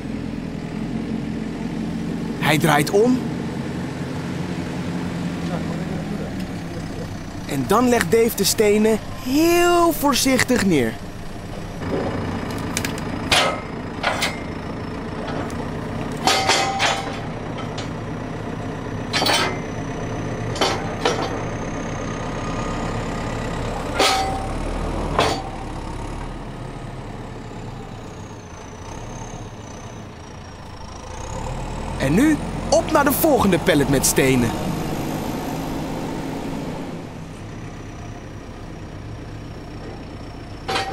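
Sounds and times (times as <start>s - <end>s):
diesel engine running: 0.0s - 40.9s
sharp clunks of pallet forks: 12.8s - 14.5s, 16.2s - 18.0s, 19.1s - 19.7s, 20.5s - 21.4s, 23.9s - 25.7s, 40.7s - 40.9s.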